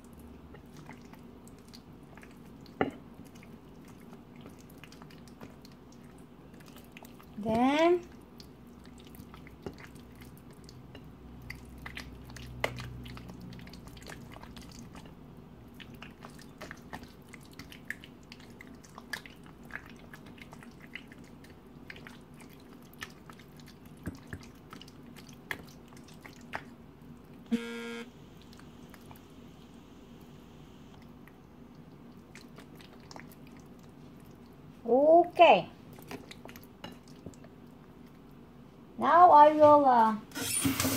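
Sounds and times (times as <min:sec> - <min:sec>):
hands squishing raw chicken: 0:00.0 - 0:27.4
faint steady hum: 0:00.0 - 0:40.3
short buzzing tone: 0:27.5 - 0:28.2.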